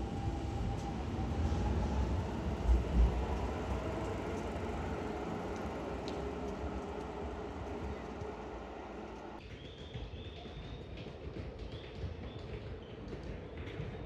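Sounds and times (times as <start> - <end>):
train wheels rumbling: 0.0 - 9.4.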